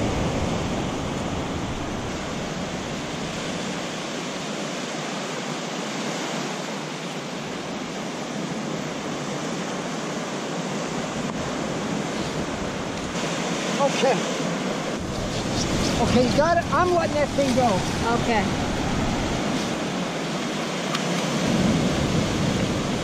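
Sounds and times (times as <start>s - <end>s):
breaking surf: 0.0s - 23.0s
heavy rain: 14.8s - 23.0s.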